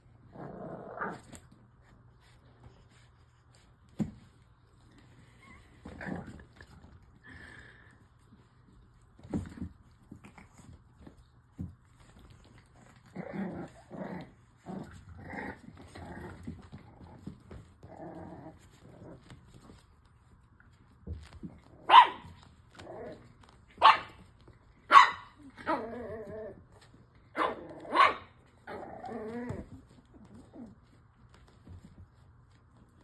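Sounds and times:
puppies growling: 0.0s - 2.6s, 4.7s - 19.9s, 22.7s - 23.6s, 25.4s - 31.0s
puppy barking: 21.8s - 22.4s, 23.8s - 24.2s, 24.9s - 25.8s, 27.4s - 28.3s.

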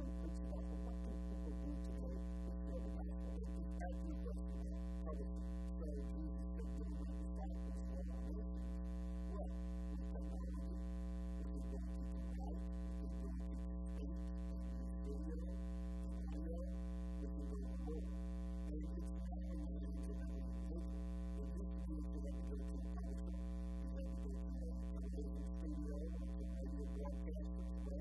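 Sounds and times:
electrical mains hum: 0.0s - 28.0s
faint speech: 0.0s - 28.0s.

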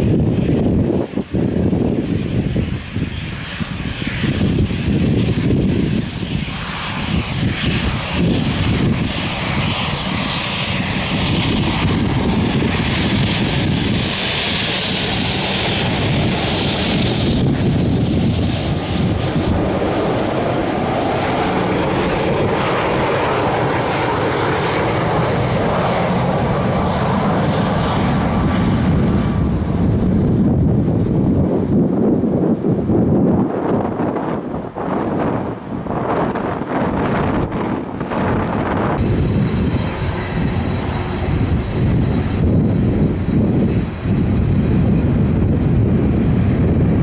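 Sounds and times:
aircraft engines running: 0.0s - 47.0s.

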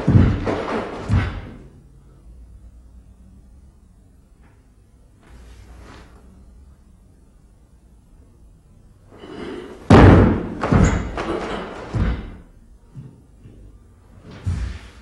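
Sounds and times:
bare feet thudding on wooden floor: 0.0s - 1.6s, 9.9s - 12.4s.

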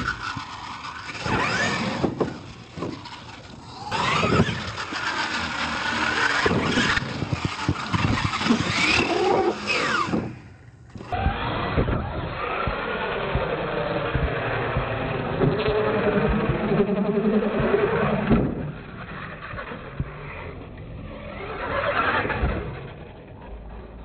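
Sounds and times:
trucks landing knocks: 0.0s - 11.1s, 18.1s - 18.8s
toy truck motors whining: 0.0s - 24.0s.

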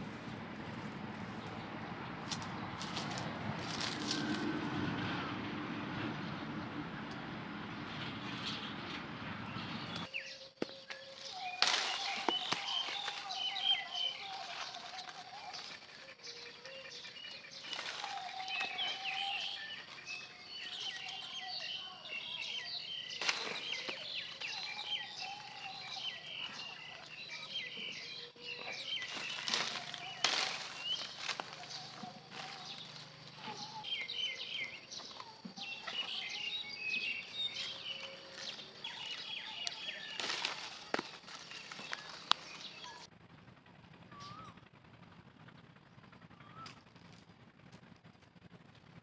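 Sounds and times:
small birds chirping: 8.3s - 43.1s
wavering bird call: 10.2s - 43.1s, 44.1s - 44.6s
sharp crackles: 23.1s - 27.2s, 28.7s - 33.6s, 37.6s - 42.9s.

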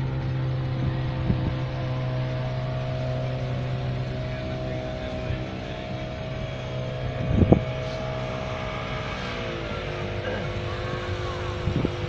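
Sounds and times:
boat engines droning: 0.0s - 12.0s
motorboat passing: 0.0s - 12.0s.

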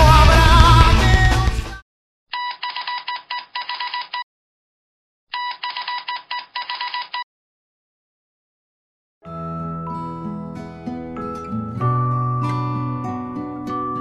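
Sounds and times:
telephone ringing: 2.3s - 4.2s, 5.3s - 7.2s.

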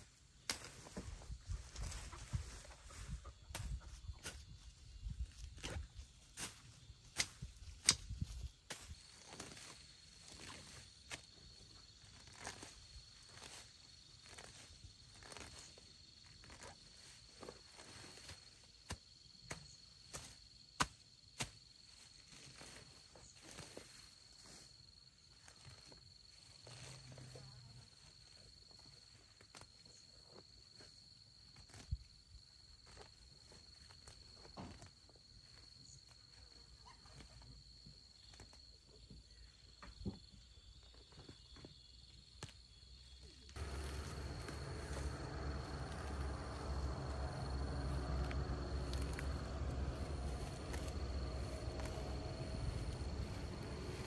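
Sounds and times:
high-pitched insect drone: 43.6s - 54.0s.

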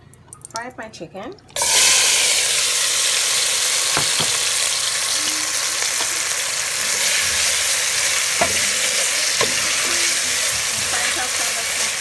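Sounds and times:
chicken sizzling in oil: 1.6s - 12.0s
spatula knocks: 8.4s - 10.9s.

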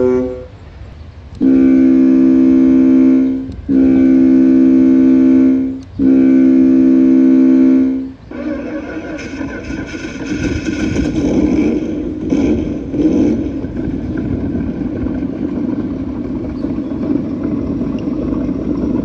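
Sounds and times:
ship's horn blasts: 0.0s - 13.8s.

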